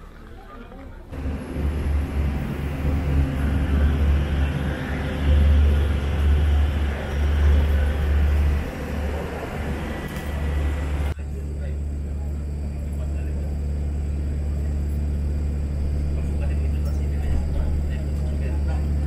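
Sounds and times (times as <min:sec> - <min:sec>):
aircraft engine hiss: 0:01.1 - 0:11.2
low engine drone: 0:01.1 - 0:19.0.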